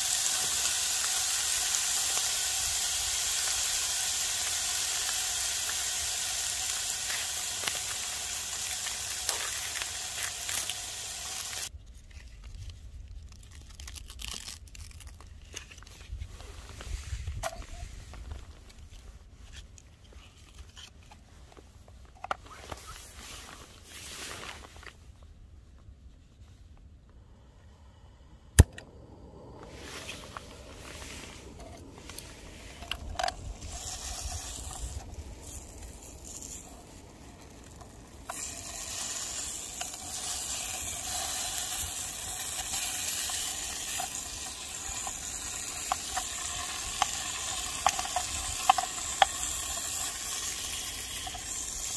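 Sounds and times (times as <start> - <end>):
food sizzling in a pot: 0.0 - 11.7, 33.6 - 51.9.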